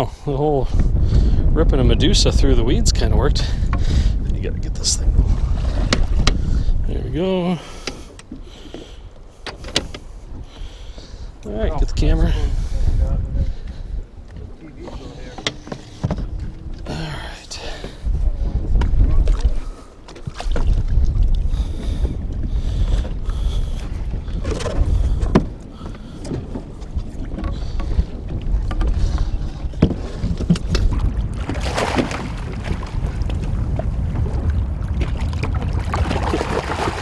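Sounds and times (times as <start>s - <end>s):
wind and water against boat hull: 0.0s - 37.0s
gear knocking on boat: 24.3s - 33.9s.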